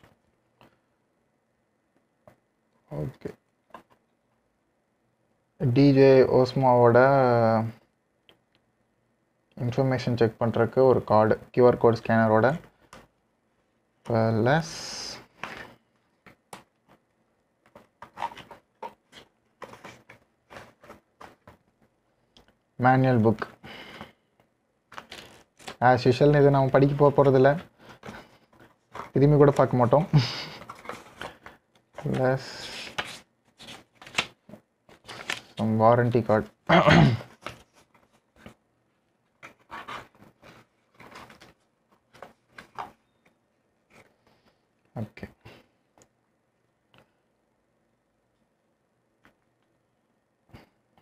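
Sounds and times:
paper and cardboard rustling: 0:17.7 - 0:21.9, 0:24.9 - 0:25.8, 0:26.7 - 0:35.8, 0:37.3 - 0:38.6, 0:39.4 - 0:43.0.

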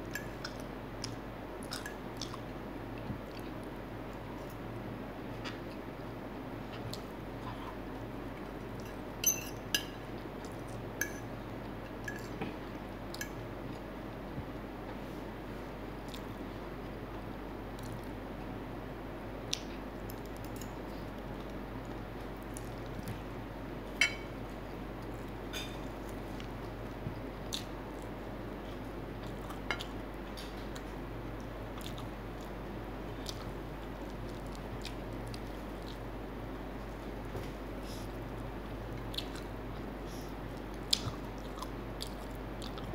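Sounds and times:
steady low hum: 0:00.0 - 0:42.9
fork clinking against a plate: 0:08.8 - 0:10.0, 0:11.0 - 0:12.3, 0:24.0 - 0:24.4
chewing: 0:16.0 - 0:16.3, 0:29.2 - 0:32.6, 0:33.2 - 0:36.1, 0:39.0 - 0:42.9.

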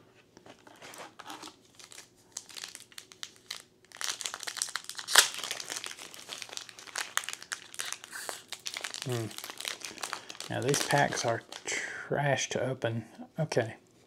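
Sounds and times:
foil wrapper crinkling: 0:00.6 - 0:11.7.

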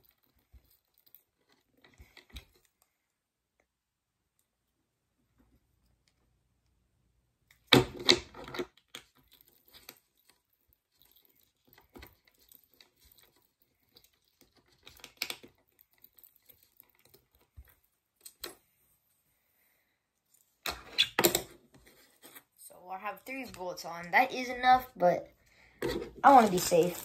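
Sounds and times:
small parts clicking and clattering: 0:07.5 - 0:18.6.

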